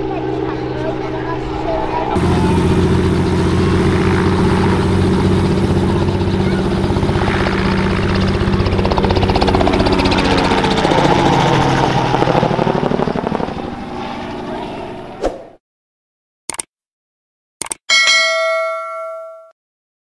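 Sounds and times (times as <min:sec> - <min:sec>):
helicopter engine: 0:00.0 - 0:15.2
helicopter rotor blade chop: 0:00.0 - 0:15.6.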